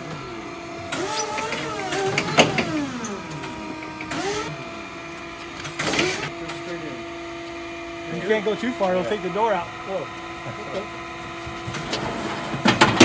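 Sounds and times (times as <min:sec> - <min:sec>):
steady motor hum: 0:00.0 - 0:13.0.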